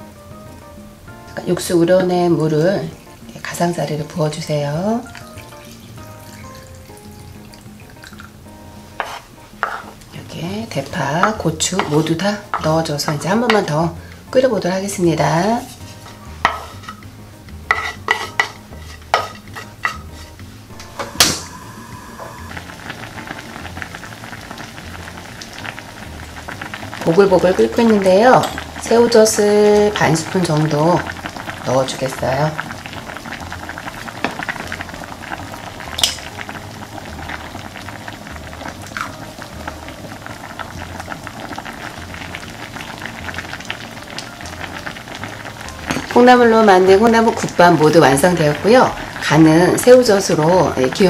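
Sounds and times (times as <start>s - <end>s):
soup bubbling at a boil: 1.4s - 9.0s, 20.1s - 51.0s
wooden spatula knocking on board: 9.0s - 9.9s.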